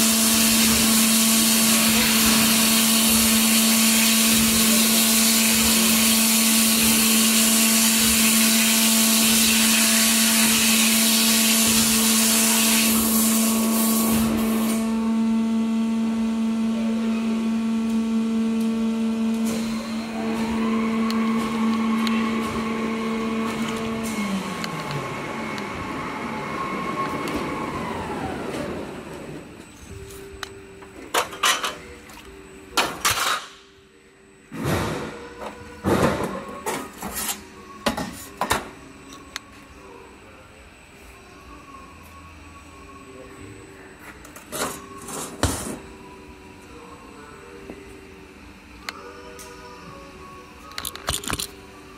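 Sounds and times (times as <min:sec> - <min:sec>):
machine humming: 0:00.0 - 0:32.9.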